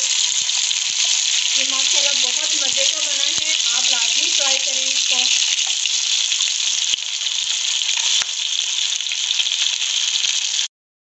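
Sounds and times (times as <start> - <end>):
chicken sizzling in hot oil: 0.0 - 10.7.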